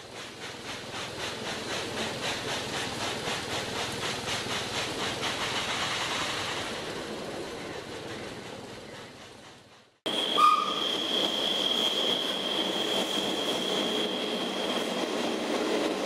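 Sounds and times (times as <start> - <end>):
steam hissing: 0.0 - 16.0
steam locomotive chuffing: 0.0 - 16.0.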